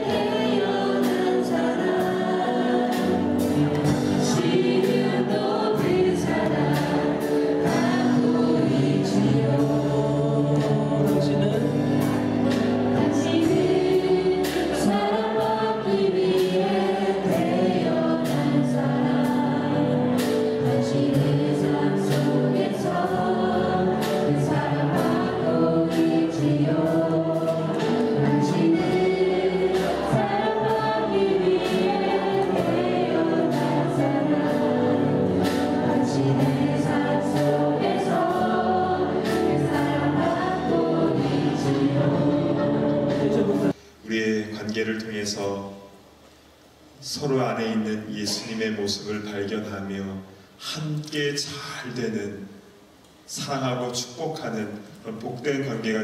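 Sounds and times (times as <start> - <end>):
congregation singing: 0.0 - 44.4.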